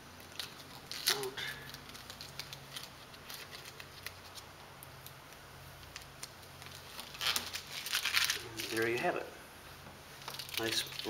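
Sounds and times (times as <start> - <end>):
vinyl film peeling crackles: 0.1 - 9.3, 10.1 - 11.0
crinkling burst: 0.2 - 9.0.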